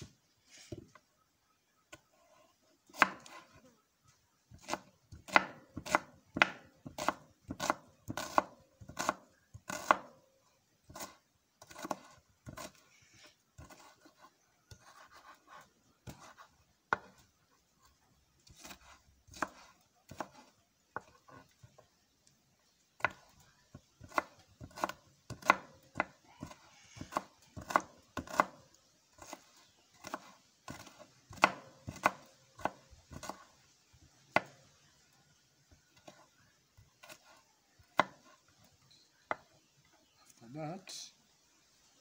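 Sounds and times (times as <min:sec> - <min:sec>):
knife chopping onions: 0:02.9 - 0:03.7, 0:04.5 - 0:10.2, 0:10.9 - 0:12.9, 0:13.6 - 0:17.2, 0:18.4 - 0:21.5, 0:23.0 - 0:33.6, 0:37.0 - 0:38.4.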